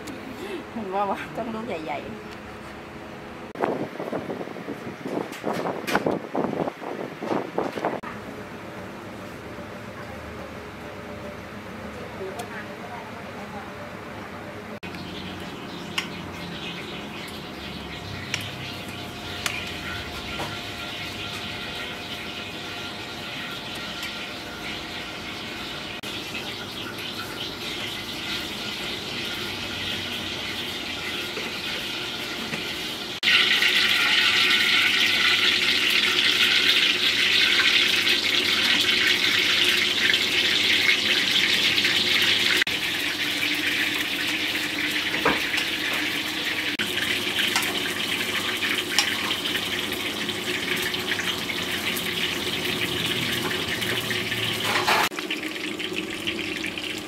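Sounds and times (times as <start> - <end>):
water running from a tap: 33.2 - 57.0.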